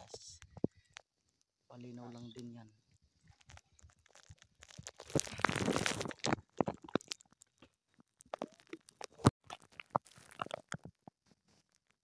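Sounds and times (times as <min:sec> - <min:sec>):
microphone handling noise: 0:04.8 - 0:07.0.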